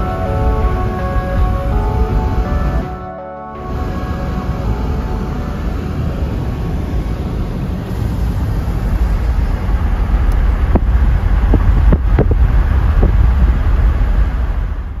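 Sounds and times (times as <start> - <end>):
rushing wind: 0.0 - 15.0
tyre and engine rumble: 3.6 - 15.0.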